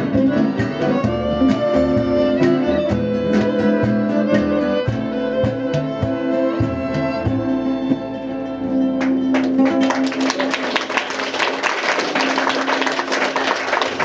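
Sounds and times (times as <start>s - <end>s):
accordion: 0.0s - 10.1s
violin: 0.0s - 10.6s.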